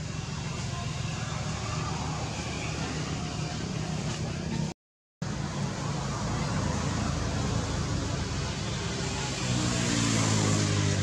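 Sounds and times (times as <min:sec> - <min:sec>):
steady background noise: 0:00.0 - 0:11.0
vehicle engine hum: 0:00.0 - 0:11.0.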